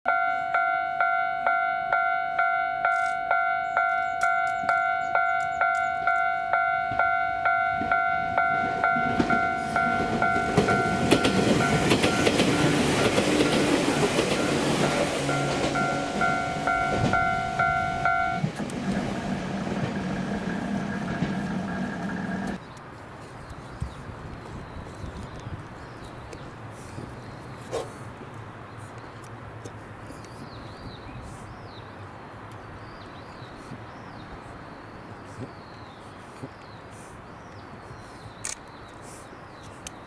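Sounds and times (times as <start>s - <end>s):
level crossing bell ringing: 0.1s - 18.5s
train rumble and rail clatter: 1.5s - 22.6s.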